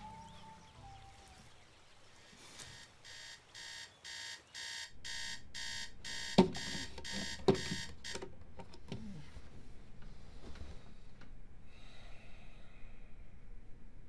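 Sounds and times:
digital alarm clock beeping: 0:02.6 - 0:08.2.

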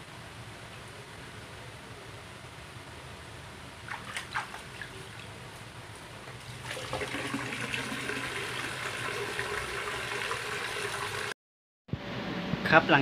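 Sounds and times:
water sloshing in plastic basin: 0:03.9 - 0:05.3
tap water pouring: 0:06.4 - 0:11.3.

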